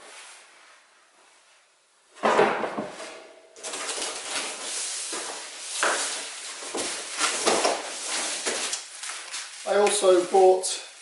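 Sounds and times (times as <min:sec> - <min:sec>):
bubble wrap rustling and crinkling: 0:03.6 - 0:11.0.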